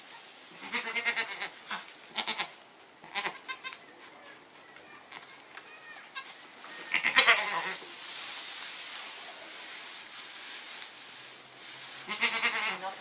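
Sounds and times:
straw rustling: 0.0s - 13.0s
goat bleating: 0.6s - 7.8s, 12.0s - 12.9s.

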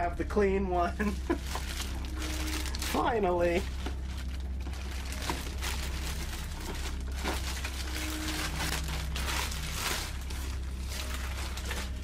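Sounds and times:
steady low hum: 0.0s - 12.0s
plastic bag crinkling: 1.0s - 12.0s.

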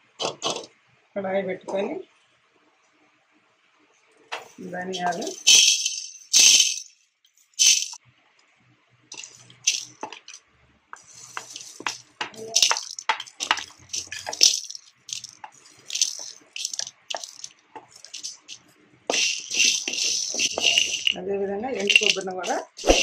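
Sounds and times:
dry spices rattling in metal pan: 4.4s - 6.9s, 7.5s - 8.0s, 9.1s - 10.4s, 11.0s - 23.0s.

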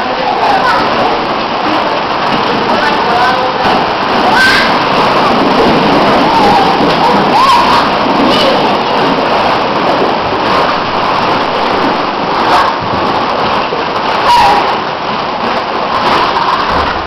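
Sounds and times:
plastic balls clattering: 0.8s - 14.2s.

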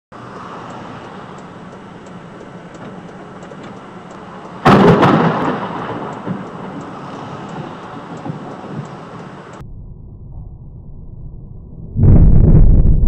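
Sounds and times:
thunder crack and rumble: 4.6s - 6.9s, 7.5s - 8.9s, 9.6s - 13.0s.

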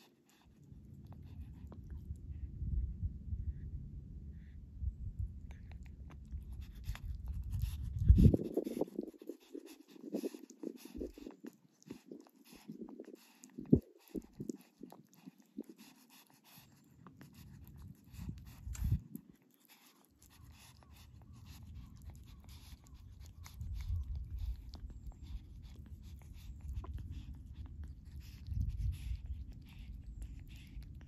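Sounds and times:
low rumbling noise: 0.8s - 8.7s
cat lapping milk: 5.4s - 31.0s.

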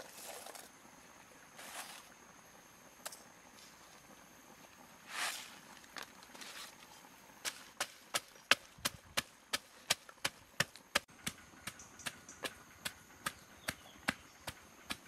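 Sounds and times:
pestle pounding in wooden mortar: 7.8s - 15.0s.

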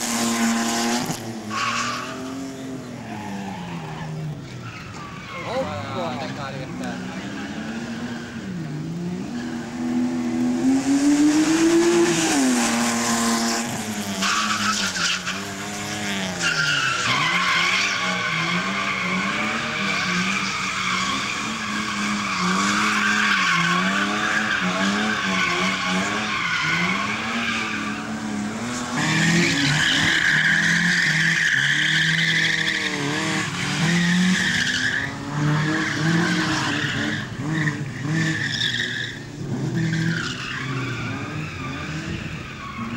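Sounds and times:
car engine revving: 0.0s - 3.0s, 5.6s - 42.9s
tyre squeal: 1.5s - 5.9s, 14.1s - 15.7s, 16.3s - 28.2s.

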